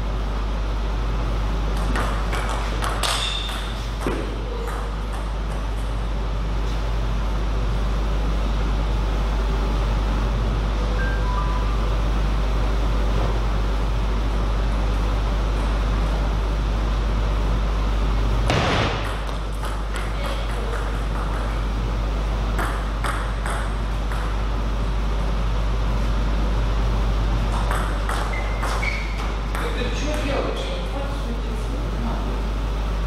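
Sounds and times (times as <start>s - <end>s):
table tennis ball tapping: 1.8s - 5.6s, 22.6s - 24.4s
loud thump: 18.5s - 19.2s.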